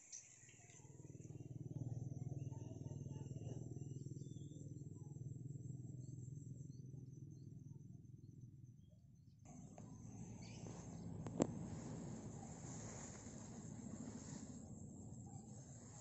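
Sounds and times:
insects trilling: 0.0s - 8.2s, 9.5s - 16.0s
faint chirps: 0.0s - 16.0s
faint low hum: 0.0s - 16.0s
broad rustling noise: 10.2s - 16.0s.

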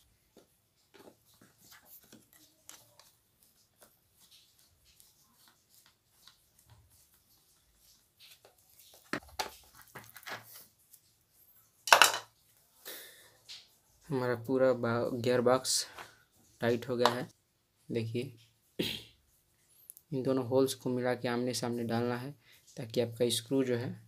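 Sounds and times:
hard plastic parts clattering: 11.9s - 12.3s.

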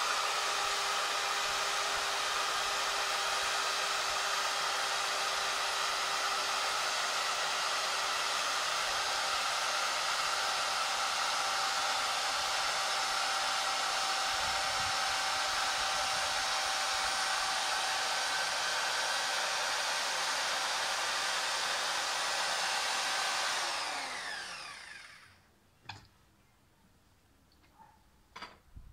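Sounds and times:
drive motor whirring under load: 23.5s - 25.4s.

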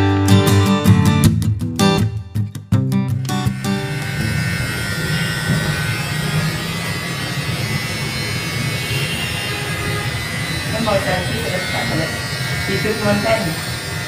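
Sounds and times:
electric hair clippers buzzing: 3.0s - 14.0s.

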